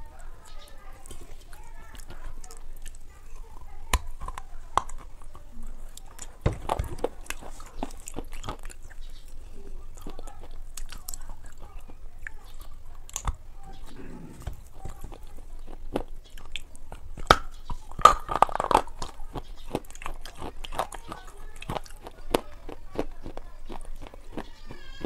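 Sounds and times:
crunchy chewing: 0.0s - 25.0s
wet mouth clicks: 10.0s - 24.2s.

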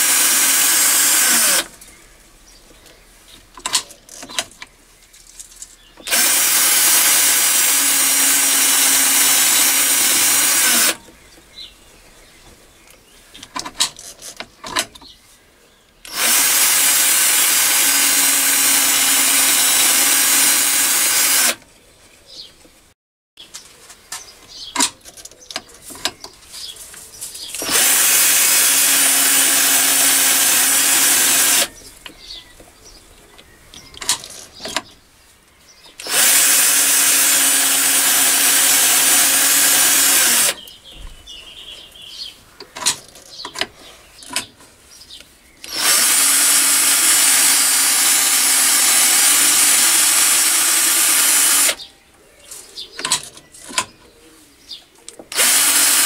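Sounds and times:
electric drill spinning: 0.0s - 1.7s, 6.0s - 11.0s, 16.1s - 21.6s, 27.6s - 31.7s, 36.0s - 40.6s, 45.6s - 51.8s, 55.3s - 56.0s.

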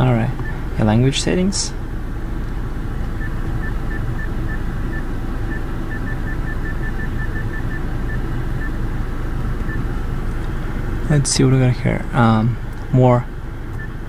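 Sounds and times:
low cabin hum: 0.0s - 14.0s
touchscreen beeps: 3.2s - 8.8s.

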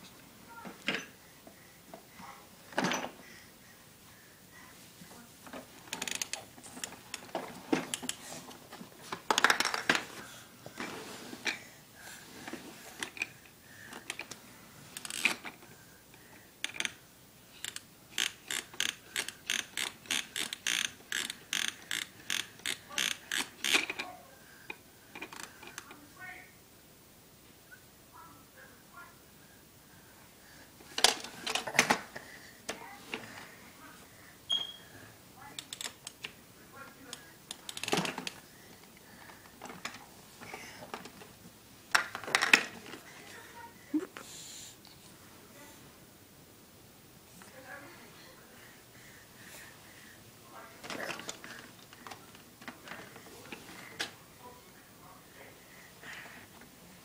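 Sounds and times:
plastic toy ratcheting clicks: 16.6s - 17.0s, 17.6s - 24.0s.

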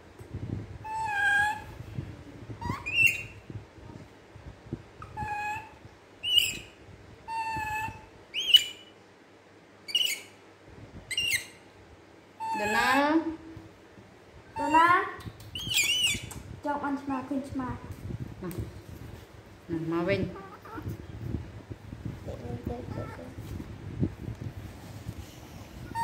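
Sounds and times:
baby monkey coo calls: 0.8s - 1.8s, 2.6s - 3.4s, 5.0s - 6.7s, 7.3s - 8.8s, 9.9s - 10.3s, 11.1s - 11.6s, 12.4s - 13.0s, 15.6s - 16.4s
faint rustling: 17.8s - 26.0s.

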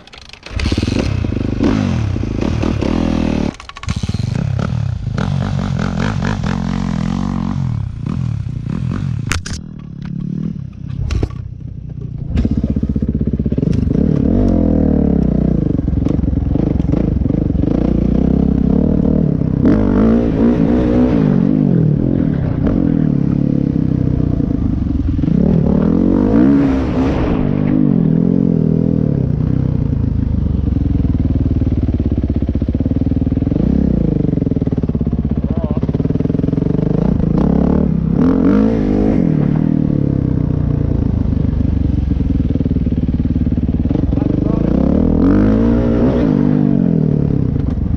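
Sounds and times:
dirt bike engine revving: 0.0s - 29.8s, 32.6s - 47.9s.

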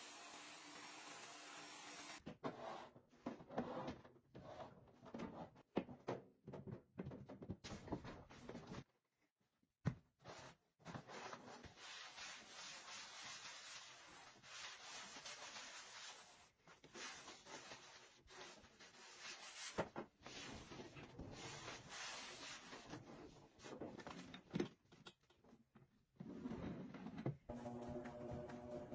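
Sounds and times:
cloth scrubbing floor: 11.7s - 23.0s.

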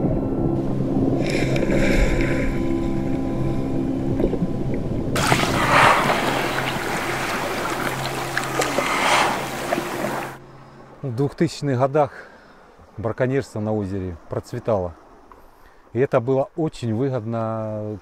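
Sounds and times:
low steady drone: 0.0s - 11.0s
underwater water noise: 1.0s - 10.5s
water splashing and dripping: 5.2s - 10.4s.

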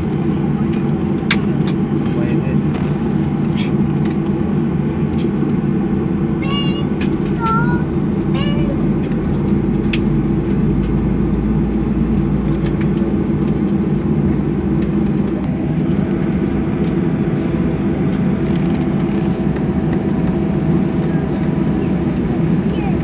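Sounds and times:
jet cabin rumble: 0.0s - 23.0s.

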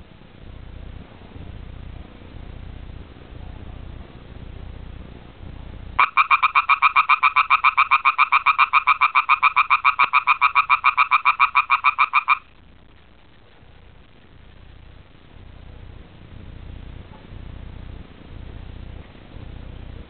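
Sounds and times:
frog trilling: 6.0s - 12.5s.

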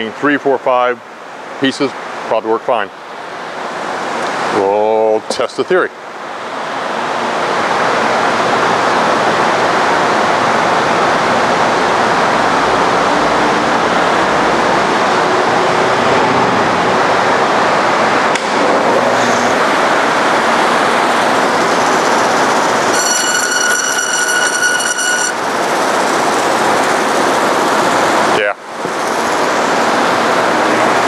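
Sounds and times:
bandsaw running: 21.0s - 28.1s.

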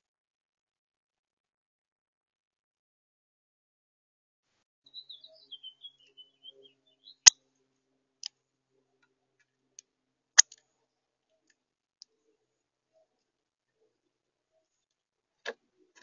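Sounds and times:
high bird chirps: 4.9s - 7.4s.

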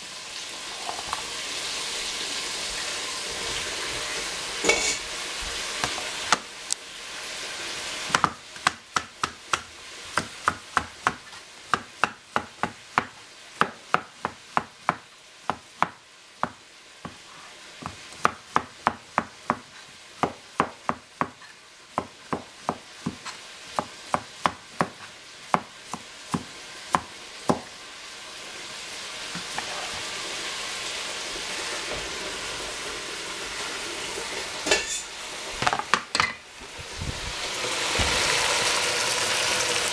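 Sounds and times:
food sizzling in frying pan: 0.0s - 39.9s
knife chopping on cutting board: 8.1s - 17.2s, 17.8s - 27.7s.

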